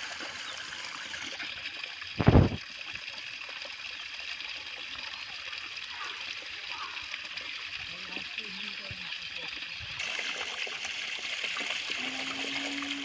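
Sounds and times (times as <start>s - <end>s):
water trickling: 0.0s - 13.0s.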